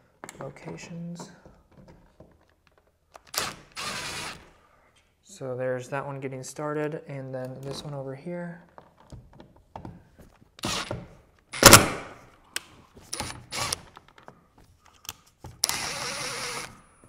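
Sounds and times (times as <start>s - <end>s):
cordless drill driving screws: 3.3s - 4.5s, 10.6s - 11.0s, 13.1s - 13.9s, 15.6s - 16.8s.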